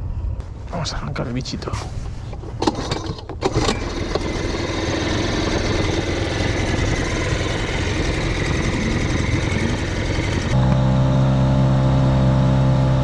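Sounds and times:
outboard motor running: 0:03.4 - 0:13.0.

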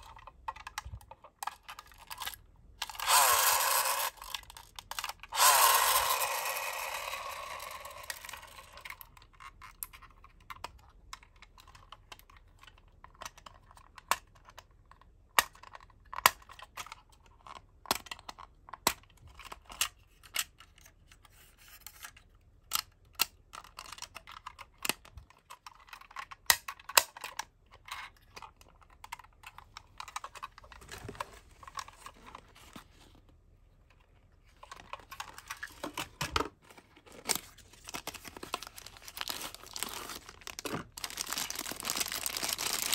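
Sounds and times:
toy van doors clicking: 0:05.4 - 0:08.8
cardboard box rustling: 0:34.6 - 0:42.9.

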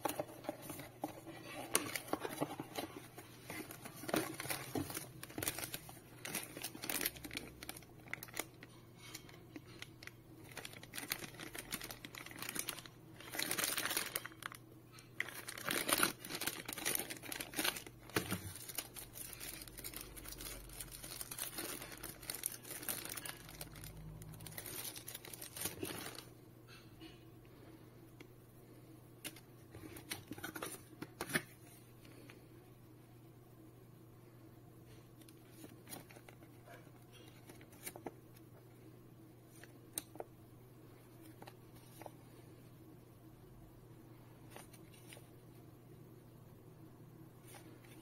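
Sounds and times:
cardboard box parts shifting: 0:00.0 - 0:07.1
plastic bags crinkling: 0:00.0 - 0:26.3.

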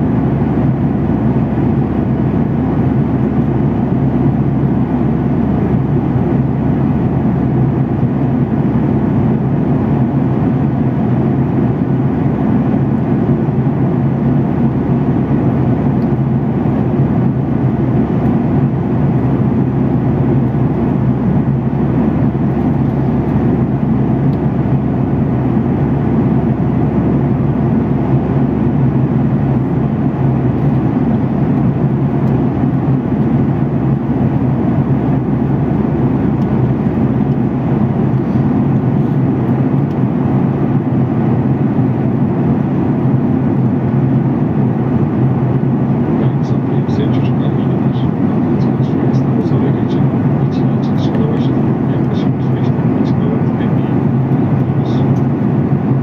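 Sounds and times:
airliner cabin drone: 0:00.0 - 0:56.0.

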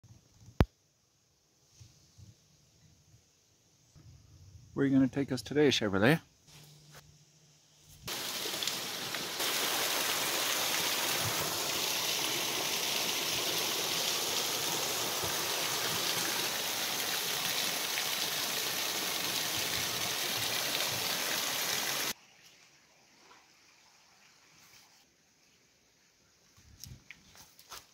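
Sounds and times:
small waterfall splashing: 0:08.1 - 0:22.2.

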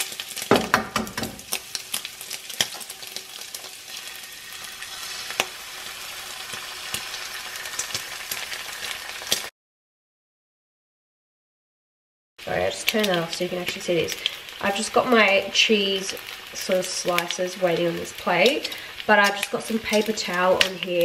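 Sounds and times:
fat popping and crackling: 0:00.0 - 0:03.8, 0:18.3 - 0:21.0
bacon and egg sizzling: 0:00.0 - 0:09.5, 0:12.4 - 0:21.0.

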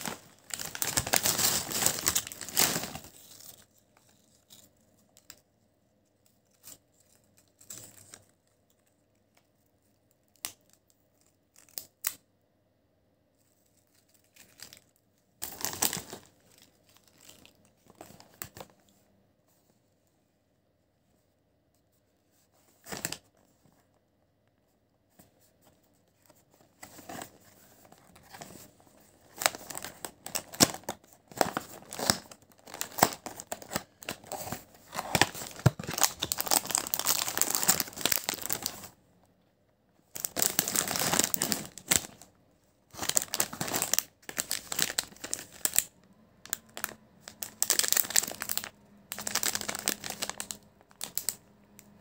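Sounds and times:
plastic wrapper crinkling: 0:00.0 - 0:05.4, 0:13.6 - 0:18.9, 0:26.2 - 0:39.0, 0:40.1 - 0:52.0.

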